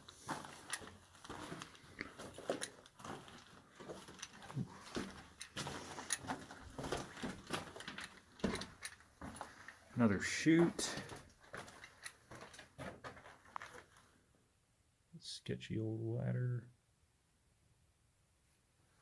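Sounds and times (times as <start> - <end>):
footsteps crunching on gravelly rock: 0.0 - 8.6
small clicks and knocks: 0.0 - 9.8, 11.0 - 13.9.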